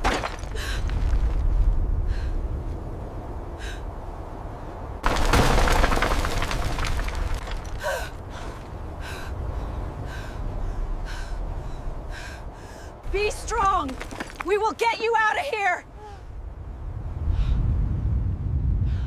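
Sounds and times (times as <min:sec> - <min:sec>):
rubble crashing down: 0:00.0 - 0:01.4, 0:05.0 - 0:08.4, 0:13.6 - 0:14.8
deep steady rumble: 0:06.6 - 0:13.2, 0:15.9 - 0:19.0.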